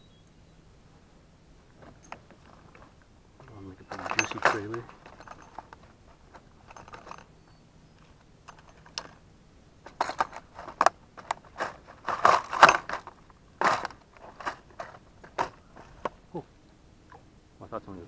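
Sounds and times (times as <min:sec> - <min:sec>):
lures shifting inside box: 0:03.8 - 0:07.3, 0:09.9 - 0:16.2
plastic tackle box clicks and rattles: 0:09.9 - 0:16.1.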